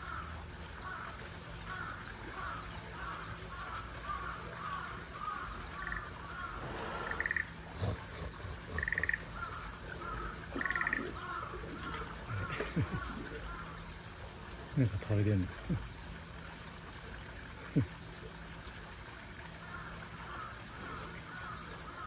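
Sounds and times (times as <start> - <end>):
frogs calling: 0.0 - 16.3, 19.5 - 22.0
harsh buzzy frog calls: 1.7 - 13.9.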